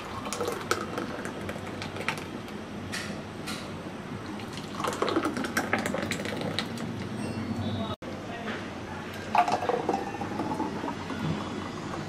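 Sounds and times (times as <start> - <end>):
juice glugging into a glass: 0.0 - 2.3, 4.3 - 6.8, 9.3 - 11.3.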